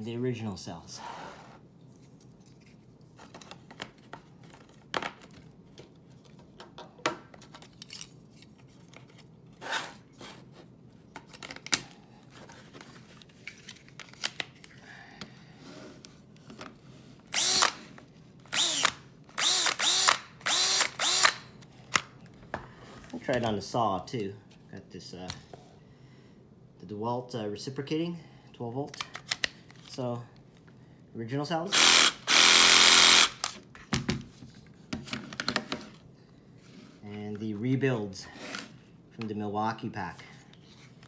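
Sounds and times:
cordless drill spinning: 17.3s - 17.9s, 18.5s - 21.5s, 31.7s - 33.6s.

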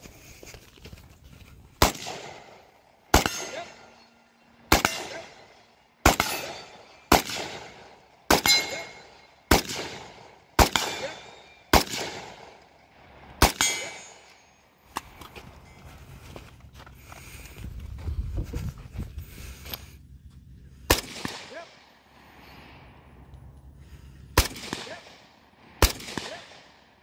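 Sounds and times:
rifle shots: 1.8s - 4.0s, 4.6s - 12.6s, 13.4s - 14.2s, 20.9s - 21.9s, 24.4s - 27.0s
steel target plate ringing: 3.2s - 7.1s, 8.4s - 9.4s, 13.5s - 14.8s.

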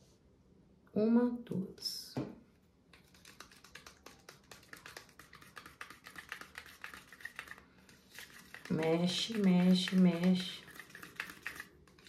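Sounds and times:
spatula stirring paint in a cup: 2.9s - 12.0s.

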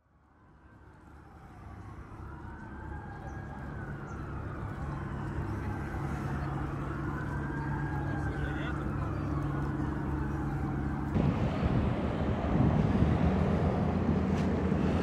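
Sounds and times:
emergency vehicle siren wailing: 0.0s - 15.0s
low rumble of traffic: 0.0s - 15.0s.

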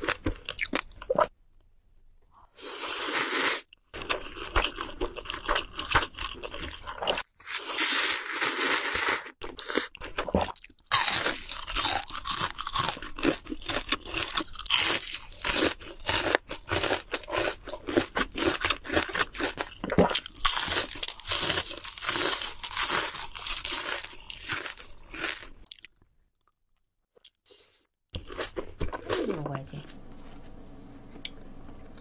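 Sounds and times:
crunching and chewing fried food: 0.0s - 1.2s, 2.7s - 27.6s, 28.2s - 30.0s.

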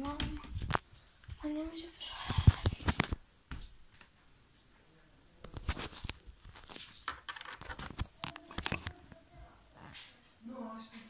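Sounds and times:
phone handling rustling: 5.6s - 9.0s.

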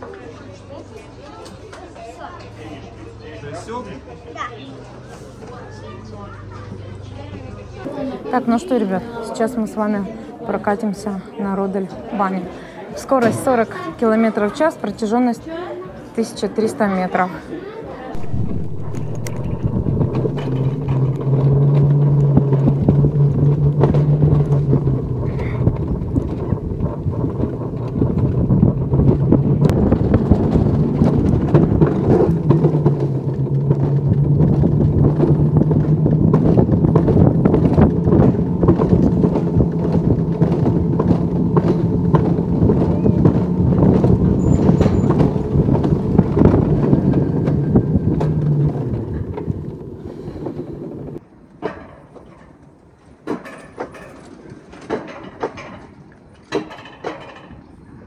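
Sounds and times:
sled rolling on metal rail: 18.1s - 58.0s.

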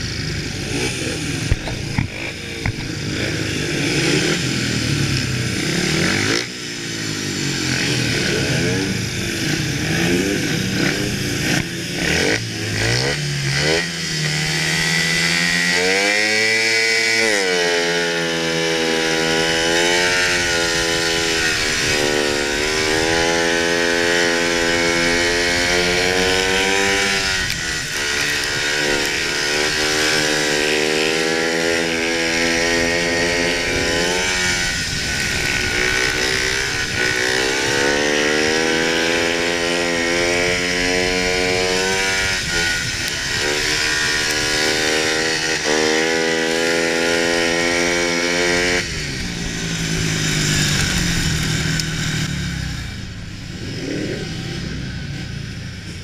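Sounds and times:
motorcycle engine revving: 0.0s - 56.0s
wind rushing over microphone: 19.2s - 56.0s.

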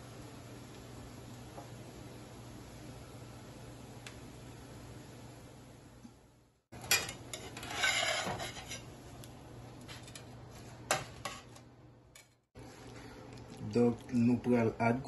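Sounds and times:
metal spatula scraping frying pan: 6.9s - 9.0s.

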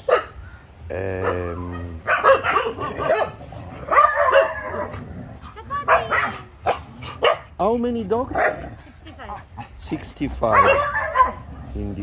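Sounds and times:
dogs barking: 0.0s - 0.4s, 1.1s - 12.0s
people talking: 0.9s - 2.0s, 5.5s - 6.5s, 7.6s - 10.9s.

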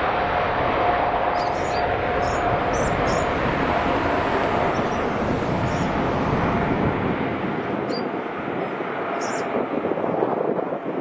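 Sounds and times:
jet engines at takeoff: 0.0s - 11.0s.

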